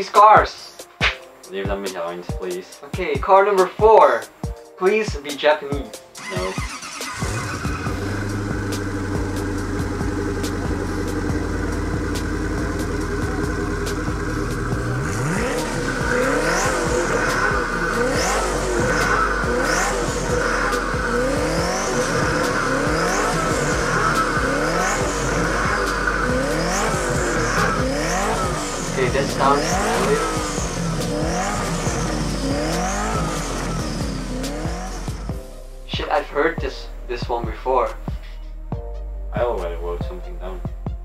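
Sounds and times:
car engine idling: 0:06.2 - 0:35.5.

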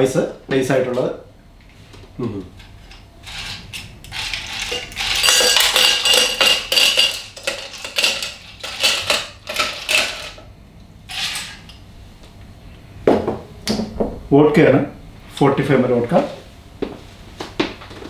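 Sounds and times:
ice cubes clattering in metal shaker: 0:03.3 - 0:10.4, 0:11.1 - 0:11.6.

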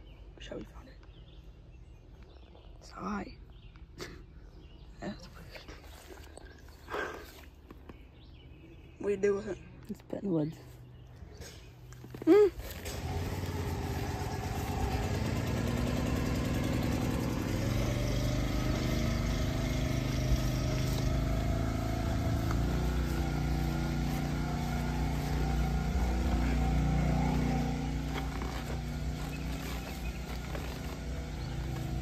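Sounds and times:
engine running: 0:11.4 - 0:32.0.

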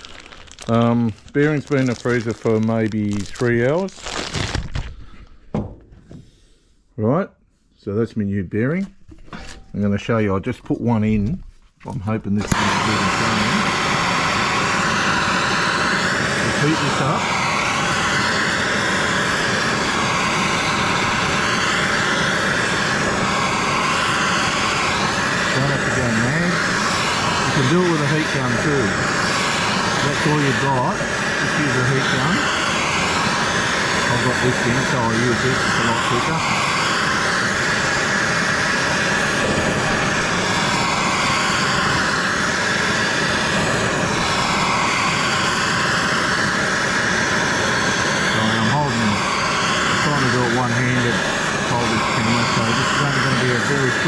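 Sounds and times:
gas torch flame roaring: 0:00.0 - 0:06.6, 0:11.9 - 0:54.0.

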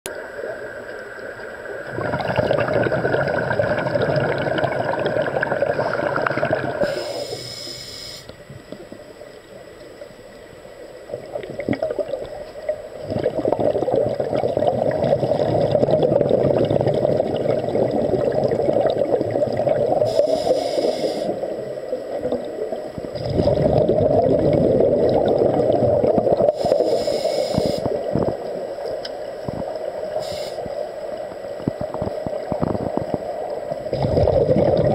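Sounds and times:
air bubbling underwater: 0:01.9 - 0:06.9, 0:13.0 - 0:20.2, 0:23.1 - 0:26.6, 0:33.9 - 0:34.9.

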